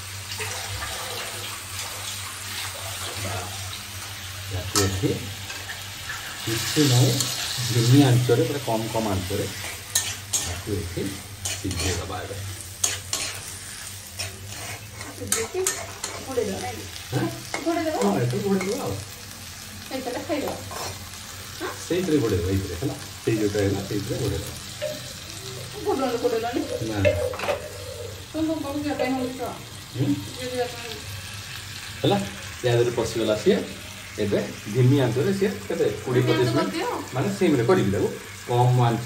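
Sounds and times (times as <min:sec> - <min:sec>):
vegetables sizzling in a pan: 0:00.0 - 0:39.0
metal spatula stirring: 0:04.7 - 0:16.6, 0:20.5 - 0:21.0
spatula scraping and knocking pan: 0:09.4 - 0:12.1, 0:12.8 - 0:16.3.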